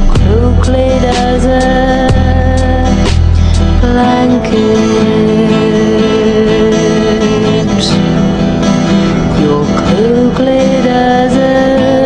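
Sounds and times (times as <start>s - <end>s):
guitar background music: 0.0s - 12.0s.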